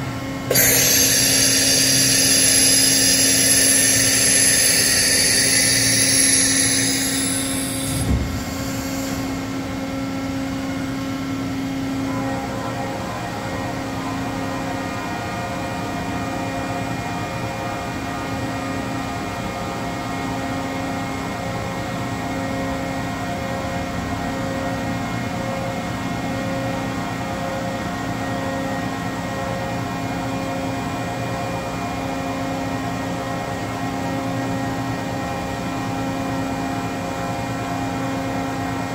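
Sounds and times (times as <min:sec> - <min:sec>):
machine hum with pulsing tones: 0:00.0 - 0:10.7
loud hiss: 0:00.5 - 0:09.4.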